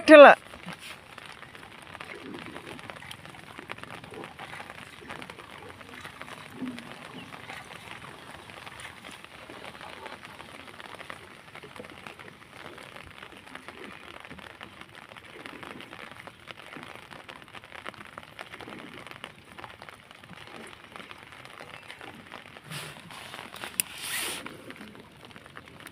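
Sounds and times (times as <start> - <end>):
light rain pattering: 0.0 - 25.9
rustle: 21.4 - 25.1.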